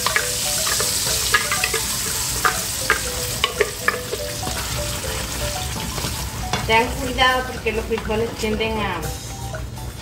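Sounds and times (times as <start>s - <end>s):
bean puree sizzling in oil: 0.0s - 7.8s
sharp popping of frying beans: 0.0s - 9.8s.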